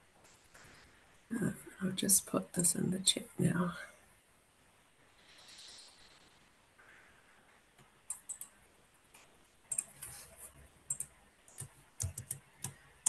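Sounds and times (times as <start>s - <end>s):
keyboard and mouse clicking: 7.8s - 10.3s, 10.9s - 13.0s.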